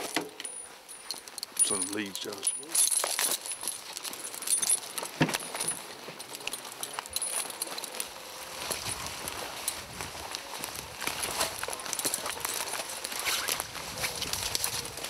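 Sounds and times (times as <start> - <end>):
metal chains jingling: 0.0 - 15.0
footsteps through dry leaves: 1.5 - 15.0.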